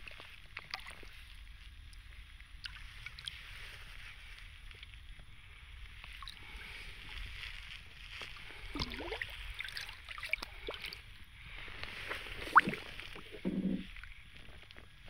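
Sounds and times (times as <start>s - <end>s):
water lapping against canoe: 8.0s - 15.0s
water dripping: 11.9s - 14.1s.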